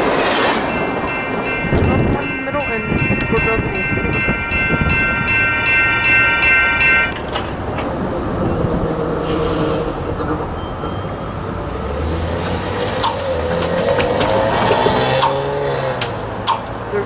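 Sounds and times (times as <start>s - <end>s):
crossing warning bell ringing: 0.5s - 8.8s.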